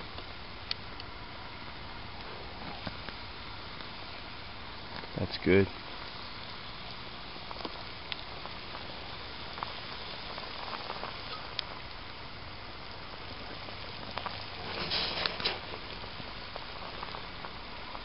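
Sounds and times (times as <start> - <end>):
pot of soup boiling: 0.0 - 18.0
small ticks: 6.0 - 12.0, 12.8 - 18.0.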